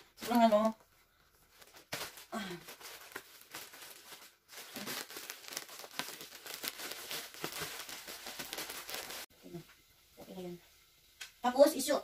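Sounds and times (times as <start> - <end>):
plastic wrapping crinkling: 0.0 - 9.3.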